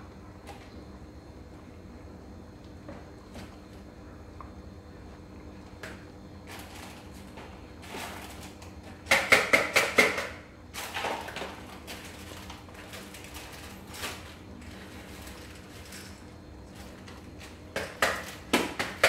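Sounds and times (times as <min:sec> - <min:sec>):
low steady hum: 0:00.0 - 0:09.1
sharp knocks in kitchen: 0:09.1 - 0:10.4.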